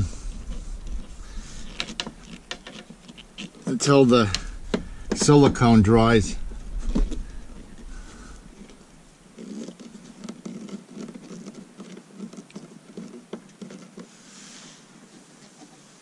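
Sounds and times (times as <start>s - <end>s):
screwdriver scraping and creaking: 0.0s - 14.1s
brief hiss: 14.2s - 15.5s.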